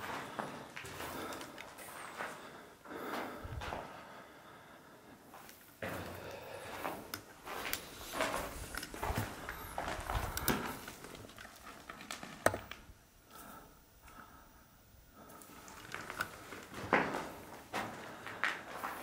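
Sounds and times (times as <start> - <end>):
footsteps crunching on rubble: 0.0 - 3.9, 5.4 - 12.9, 15.4 - 19.0.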